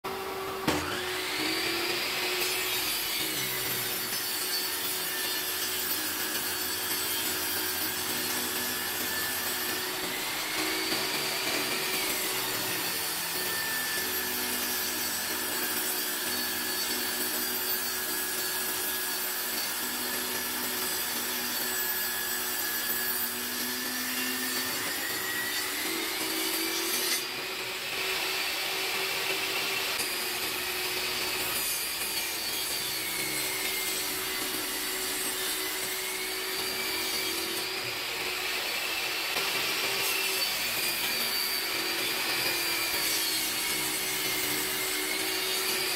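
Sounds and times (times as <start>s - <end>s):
table saw cutting wood: 0.0s - 45.9s.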